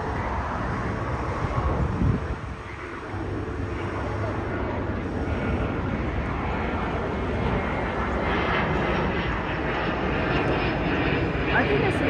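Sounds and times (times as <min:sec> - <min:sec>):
jet engine drone: 0:00.0 - 0:12.0.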